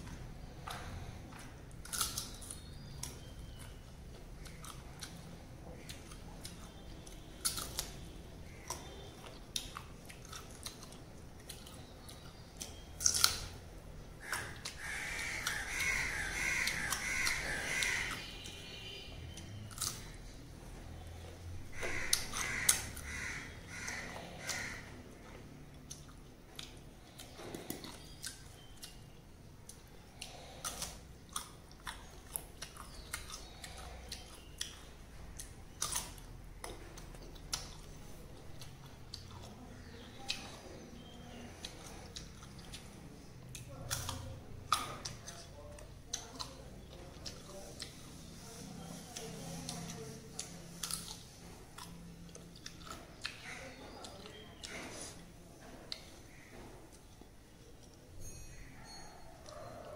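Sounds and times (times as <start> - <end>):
chewing crunchy fruit: 0.0 - 59.9
crow cawing: 14.2 - 18.3, 21.7 - 25.0.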